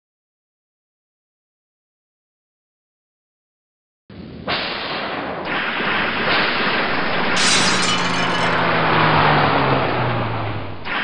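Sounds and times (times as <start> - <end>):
loud crashing and breaking: 7.4 - 9.0.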